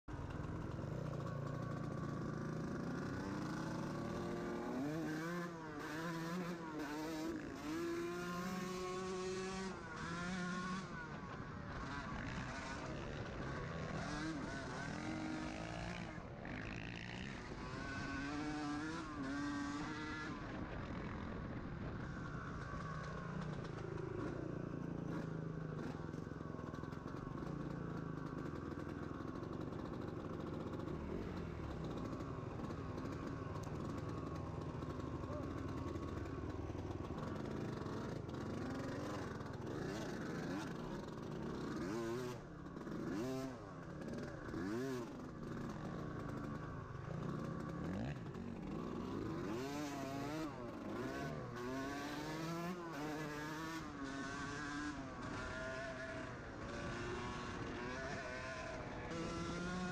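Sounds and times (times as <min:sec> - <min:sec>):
dirt bike engine revving: 0:00.1 - 0:59.9.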